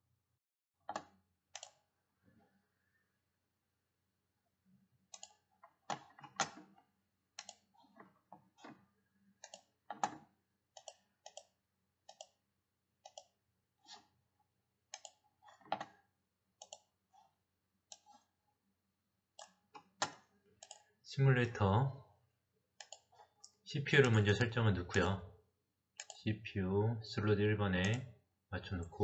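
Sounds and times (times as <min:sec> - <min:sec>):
computer mouse and keyboard clicks: 0:00.9 - 0:01.8, 0:05.1 - 0:06.8, 0:07.4 - 0:08.8, 0:09.4 - 0:12.4, 0:13.0 - 0:14.1, 0:14.9 - 0:16.0, 0:16.6 - 0:17.3, 0:17.9 - 0:18.3, 0:19.4 - 0:20.9, 0:22.8 - 0:24.2, 0:26.0 - 0:26.2.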